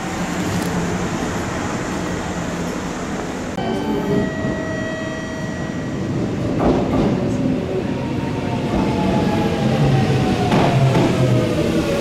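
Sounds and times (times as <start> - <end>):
train rumble: 0.0 - 12.0.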